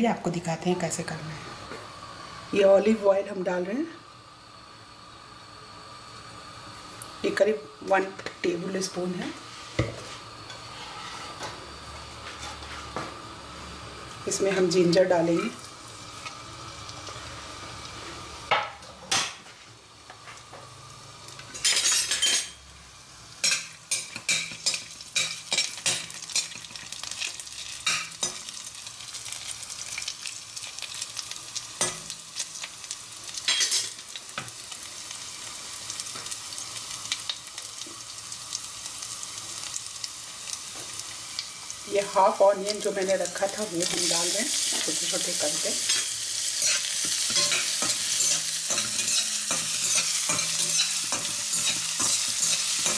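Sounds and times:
ginger sizzling in hot oil: 0.0 - 52.9
metal spoon scraping a pan: 10.5 - 11.5, 21.6 - 22.6, 45.9 - 52.9.

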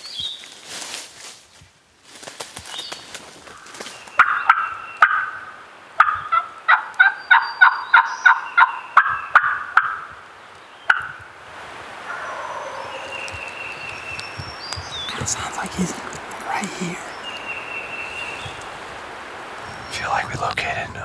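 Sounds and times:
friction call hen yelps: 12.1 - 13.5.

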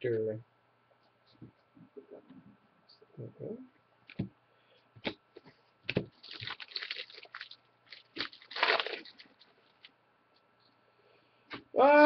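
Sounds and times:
foil wrapper crinkling: 6.1 - 9.9.

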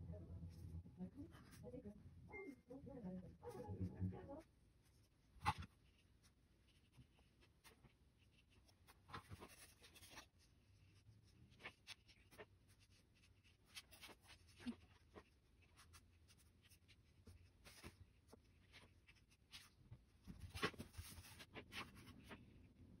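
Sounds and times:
pen scratching on paper: 4.9 - 19.8.

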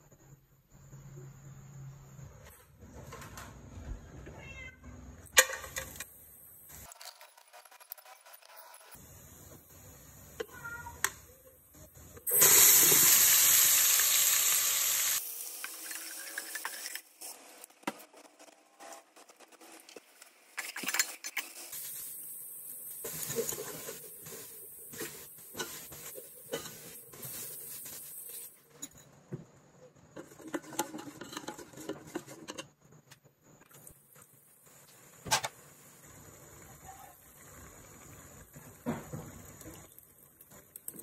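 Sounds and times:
food sizzling: 5.3 - 29.1, 33.4 - 41.0
ladle scraping metal pot: 30.2 - 32.7.

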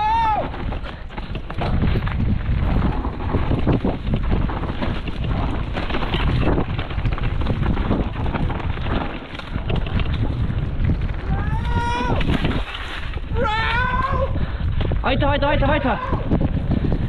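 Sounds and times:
bike tyres rattling over trail: 0.0 - 17.0
wind buffeting microphone: 0.0 - 17.0.

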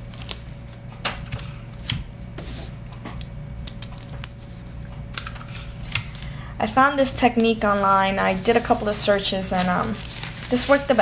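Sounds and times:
paper handling: 0.0 - 4.6, 7.1 - 11.0
faint steady hum: 0.0 - 11.0.

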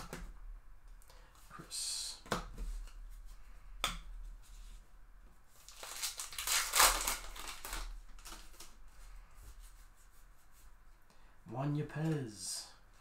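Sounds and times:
card pack wrapper crinkling and tearing: 5.6 - 8.8.

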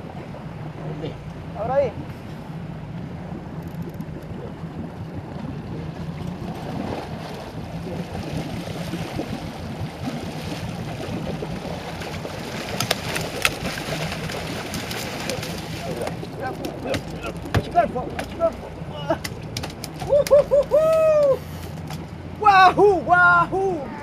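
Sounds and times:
boat engine running: 0.0 - 24.0
water rushing along hull: 0.0 - 24.0
fish splashing and knocking: 3.4 - 20.8.

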